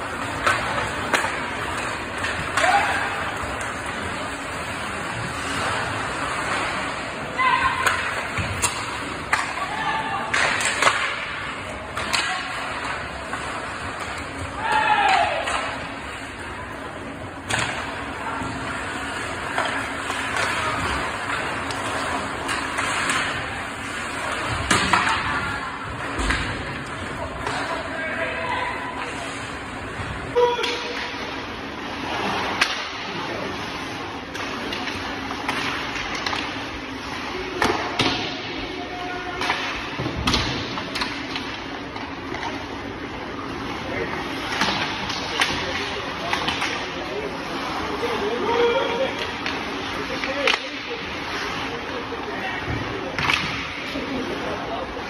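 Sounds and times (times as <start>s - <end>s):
skate blades scraping ice: 0.0s - 9.7s, 15.6s - 27.9s
hockey sticks and puck clacking: 0.0s - 33.2s, 33.8s - 55.0s.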